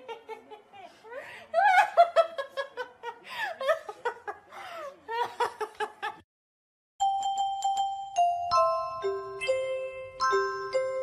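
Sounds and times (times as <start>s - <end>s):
music: 7.0s - 11.0s.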